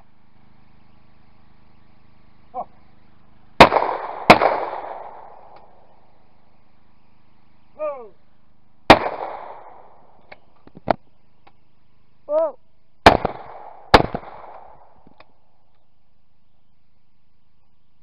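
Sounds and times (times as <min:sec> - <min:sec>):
shotgun shots with echo: 0:03.6 - 0:05.6, 0:08.9 - 0:10.0, 0:13.0 - 0:14.9
person shouting a call: 0:07.8 - 0:08.2, 0:12.3 - 0:12.6.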